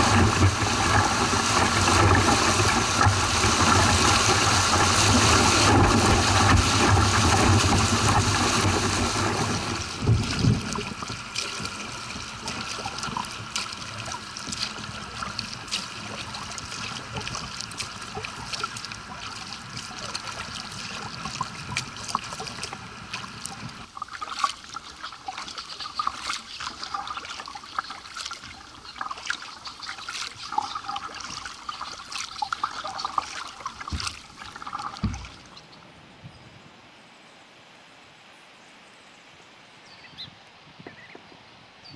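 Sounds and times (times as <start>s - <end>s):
water pouring over a weir: 0.0s - 35.6s
kayak paddle splashes: 0.0s - 35.7s
trickling and dripping water: 0.0s - 35.7s.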